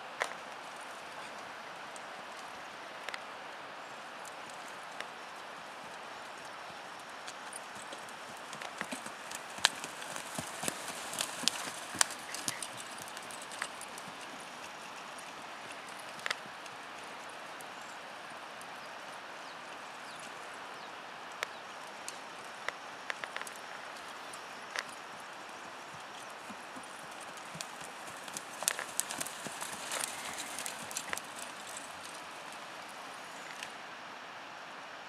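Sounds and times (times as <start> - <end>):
hoofbeats on sand: 6.5 - 17.4, 24.8 - 33.7.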